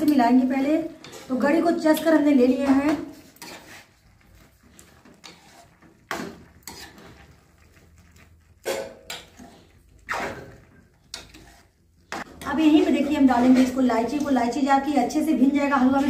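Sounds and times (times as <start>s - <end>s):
metal spatula scraping pan: 0.0s - 16.0s.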